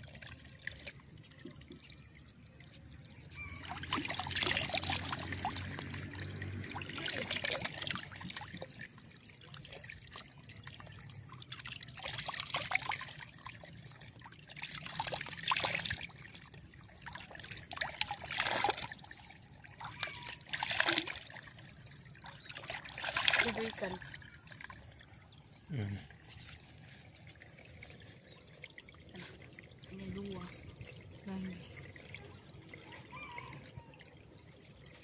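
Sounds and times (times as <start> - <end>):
water pouring and splashing: 0.0 - 35.0.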